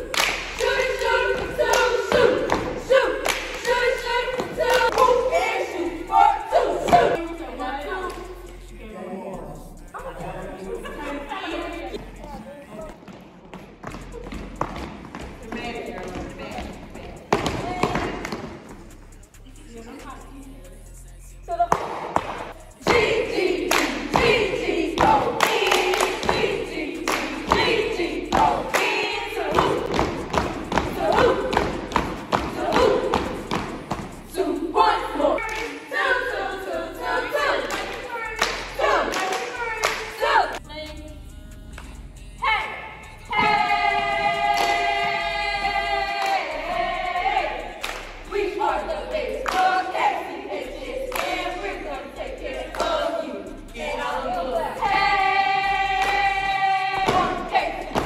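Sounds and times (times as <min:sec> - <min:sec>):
group chanting: 0:00.0 - 0:13.0, 0:21.6 - 0:40.6, 0:41.4 - 0:58.0
layered singing voices: 0:00.0 - 0:58.0
sharp claps or stomps: 0:21.7 - 0:23.0, 0:27.1 - 0:34.1, 0:57.0 - 0:58.0.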